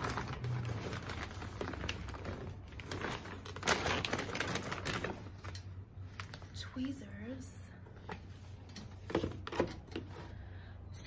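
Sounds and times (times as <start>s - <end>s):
bag and packaging rustling: 0.0s - 6.7s.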